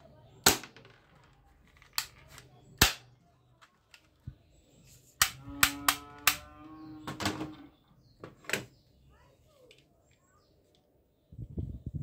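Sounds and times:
plastic toy gun clicks: 0:01.8 - 0:03.1, 0:05.2 - 0:06.4.

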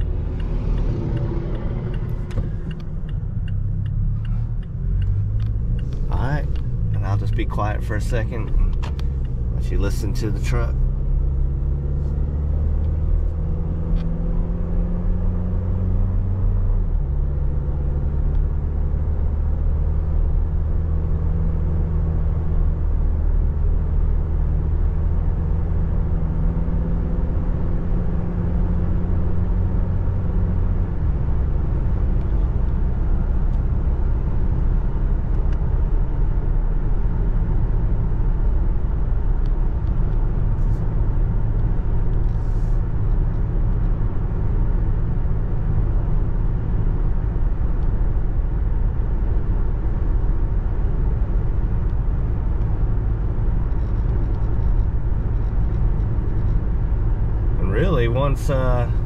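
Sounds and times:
car engine accelerating: 0:00.0 - 0:59.0
road and tyre rumble: 0:00.0 - 0:59.0.

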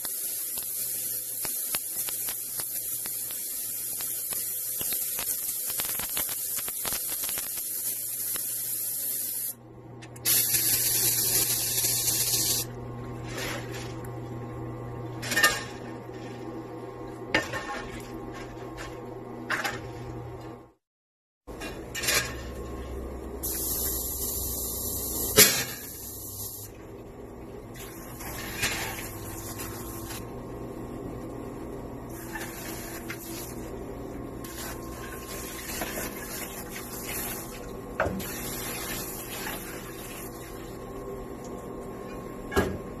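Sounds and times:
water spraying into metal sink: 0:10.3 - 0:12.6, 0:34.4 - 0:40.6.

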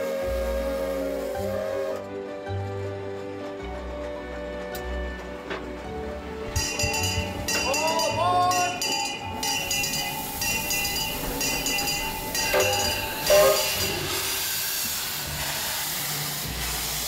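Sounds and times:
steam hissing: 0:00.0 - 0:02.1, 0:05.7 - 0:17.0.

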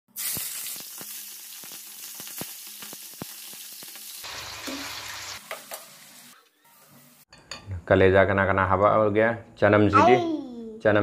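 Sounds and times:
oil popping and crackling: 0:00.1 - 0:05.8
livers frying in bubbling oil: 0:00.1 - 0:06.4
oil sizzling in a frying pan: 0:00.1 - 0:07.3.

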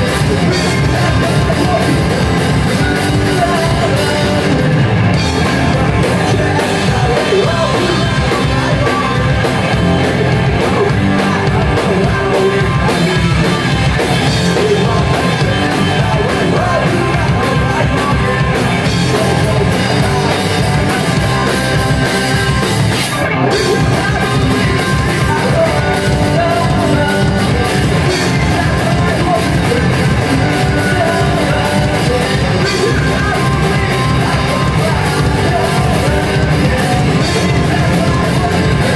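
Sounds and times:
amplified guitars: 0:00.0 - 0:38.9
man singing lead: 0:00.0 - 0:38.9.

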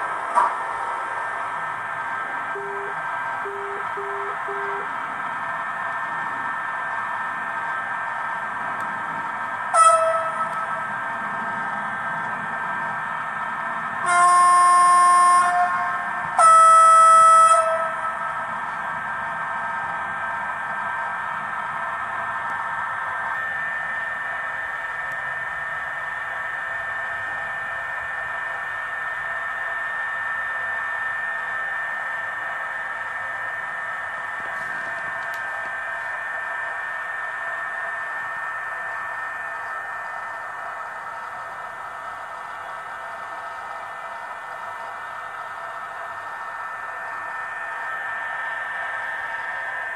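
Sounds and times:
electric train hum with whine: 0:00.0 - 0:49.9
model train horn blasts: 0:09.7 - 0:10.6, 0:14.0 - 0:18.0.

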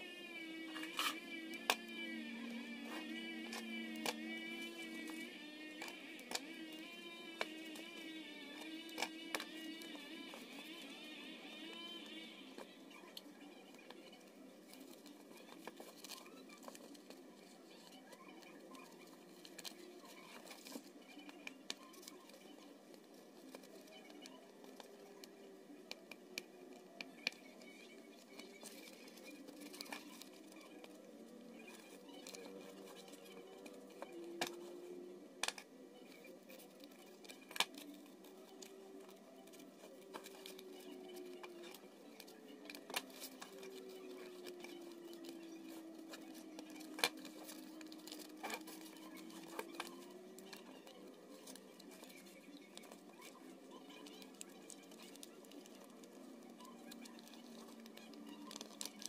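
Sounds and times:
faint wavering hum: 0:00.0 - 0:59.0
aluminium foil crinkling: 0:14.7 - 0:35.2, 0:36.0 - 0:59.0.

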